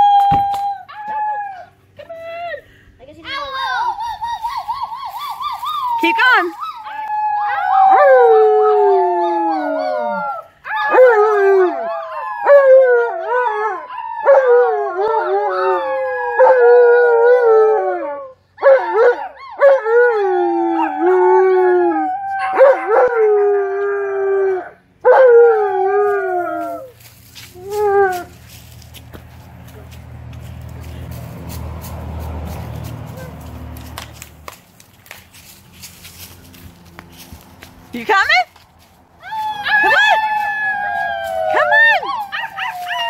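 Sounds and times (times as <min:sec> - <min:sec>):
children imitating howls: 0:03.4 - 0:18.0, 0:39.2 - 0:43.0
dog howling: 0:04.9 - 0:27.0, 0:39.2 - 0:43.0.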